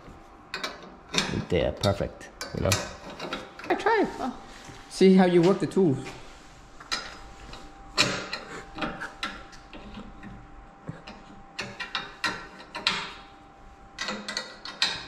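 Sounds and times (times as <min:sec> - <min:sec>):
wrench clicking and scraping on metal: 0:11.0 - 0:13.2, 0:14.0 - 0:15.0.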